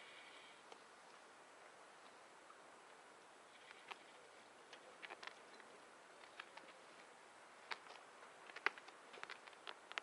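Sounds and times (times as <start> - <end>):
faint steady hiss: 0.0 - 10.0
light clicks and taps: 7.6 - 10.0.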